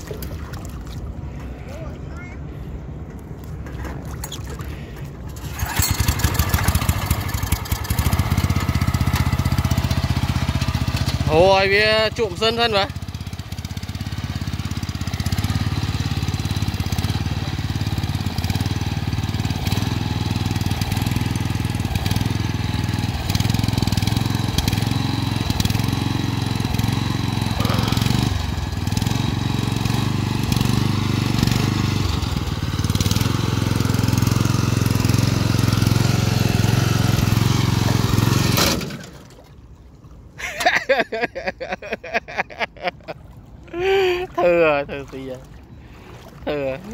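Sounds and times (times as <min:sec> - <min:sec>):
small petrol engine running: 0:05.4 - 0:39.2.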